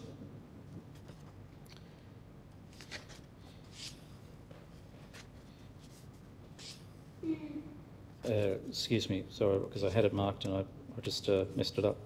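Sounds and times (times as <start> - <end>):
low room hum: 0.0 - 12.0
book pages rustling: 2.7 - 4.0, 4.6 - 6.7.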